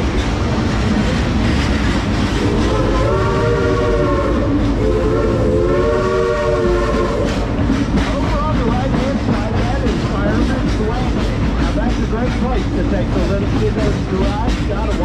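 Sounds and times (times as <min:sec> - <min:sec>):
train cars rumbling on track: 0:00.0 - 0:15.0
steam locomotive whistle: 0:02.4 - 0:07.6.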